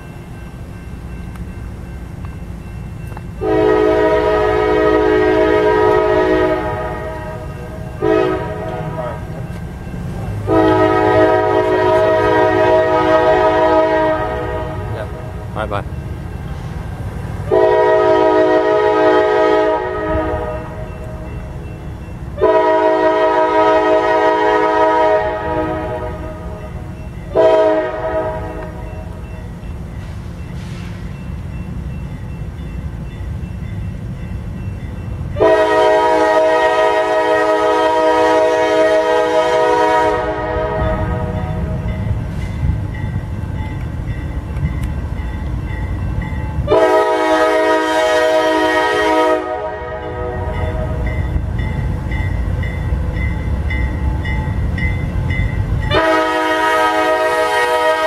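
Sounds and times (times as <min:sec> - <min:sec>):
low rumble of passing train: 0:00.0 - 0:58.0
locomotive air horn blasts: 0:03.4 - 0:09.3, 0:10.4 - 0:15.2, 0:17.5 - 0:20.8, 0:22.4 - 0:26.6, 0:27.3 - 0:28.8, 0:35.4 - 0:41.9, 0:46.7 - 0:51.1, 0:55.9 - 0:58.0.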